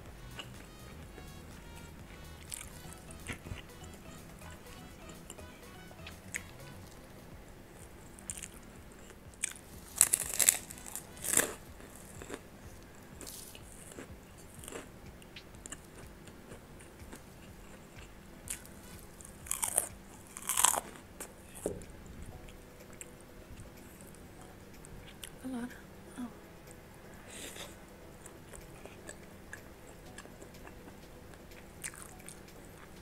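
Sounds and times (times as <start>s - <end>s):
crunchy chewing of food: 2.4s - 3.6s, 7.7s - 21.9s, 27.3s - 33.0s.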